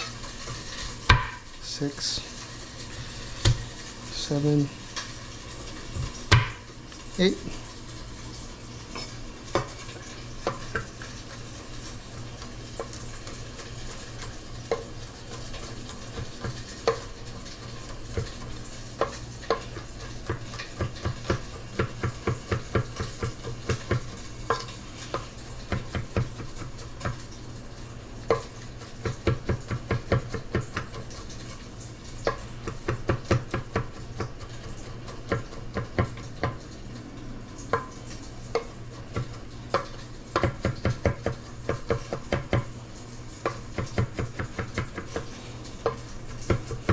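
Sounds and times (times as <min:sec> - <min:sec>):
knife chopping on wooden board: 0:01.1 - 0:01.4, 0:06.0 - 0:06.6, 0:20.2 - 0:24.6, 0:29.0 - 0:31.0, 0:32.3 - 0:34.5, 0:35.2 - 0:36.6, 0:38.5 - 0:42.7, 0:43.4 - 0:46.9.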